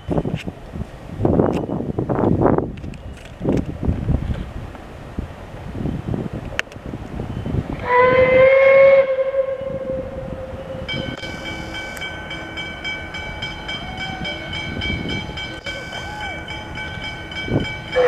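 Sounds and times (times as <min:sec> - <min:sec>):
steam locomotive whistle blast: 0:07.8 - 0:12.7, 0:15.6 - 0:16.6
steady high-pitched tone: 0:10.0 - 0:18.0.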